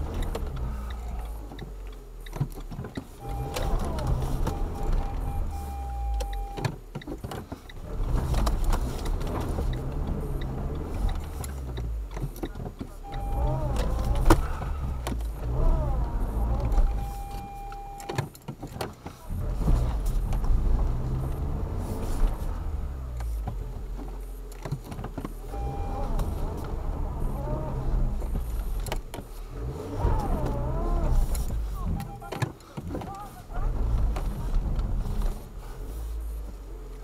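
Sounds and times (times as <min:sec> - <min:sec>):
car engine revving: 0:00.0 - 0:06.6, 0:07.8 - 0:18.1, 0:19.2 - 0:37.0
steady high beep: 0:03.2 - 0:03.8, 0:04.5 - 0:06.6, 0:13.0 - 0:13.6, 0:16.9 - 0:18.1, 0:25.5 - 0:26.1.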